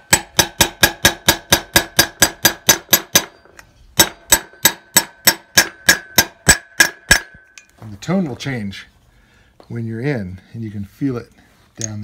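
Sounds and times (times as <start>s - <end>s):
hammer blows ringing on metal: 0.0s - 3.4s, 4.0s - 7.5s.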